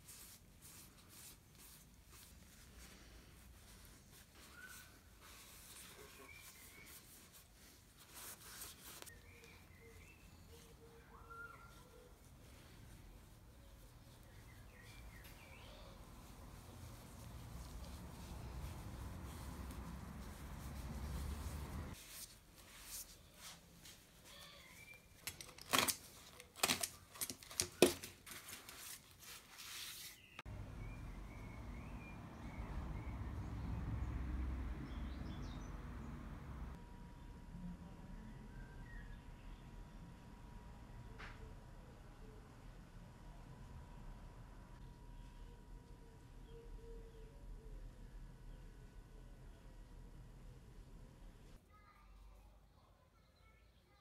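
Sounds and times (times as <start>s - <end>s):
cloth rubbing leather handle: 0.0s - 24.4s
birds chirping faintly: 0.1s - 37.4s
distant bird chirps: 9.1s - 12.7s.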